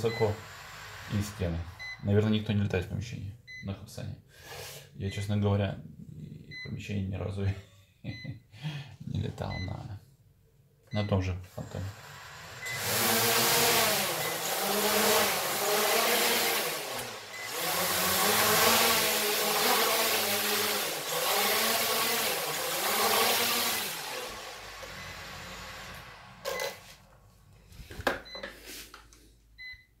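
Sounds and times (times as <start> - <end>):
drone motors and propellers whirring: 11.9 - 26.8.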